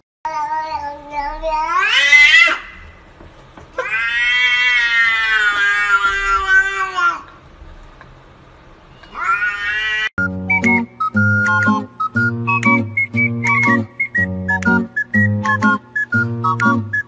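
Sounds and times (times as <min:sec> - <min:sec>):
cat meowing loudly: 0:01.7 - 0:02.8, 0:03.8 - 0:07.2, 0:09.0 - 0:10.1.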